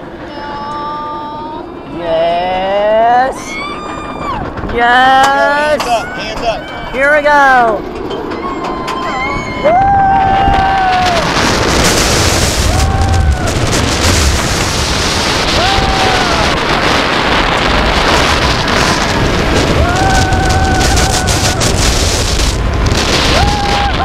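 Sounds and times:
wind rushing over microphone: 0:00.0 - 0:24.0
riders screaming: 0:03.4 - 0:07.0, 0:08.2 - 0:14.6, 0:15.2 - 0:24.0.

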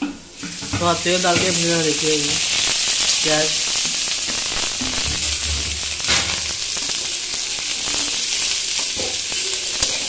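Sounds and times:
onions sizzling in oil: 0:00.0 - 0:10.0.

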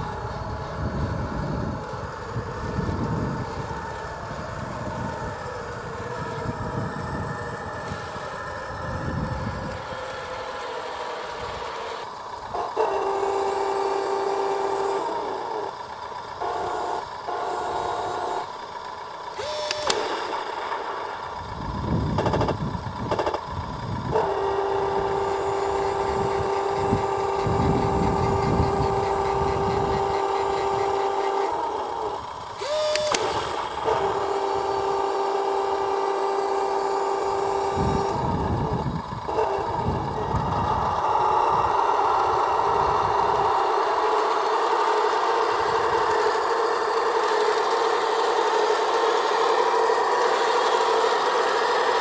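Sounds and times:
simulated engine idle hum: 0:00.0 - 0:52.0
sharp click: 0:19.4 - 0:21.2, 0:32.6 - 0:34.1.

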